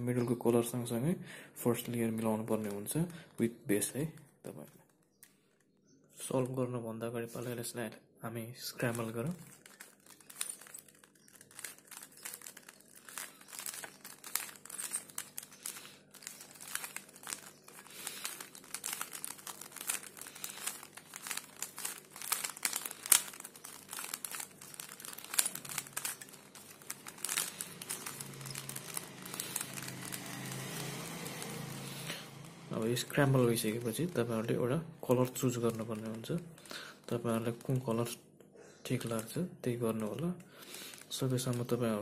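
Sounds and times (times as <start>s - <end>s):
puzzle cube plastic clicking: 8.8s - 34.3s.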